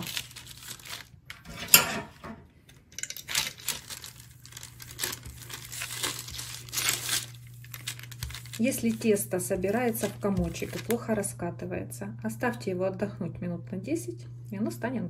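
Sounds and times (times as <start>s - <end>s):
parchment paper crinkling: 0.0s - 1.4s, 3.2s - 11.3s
pastry roller rolling over dough: 5.0s - 11.1s.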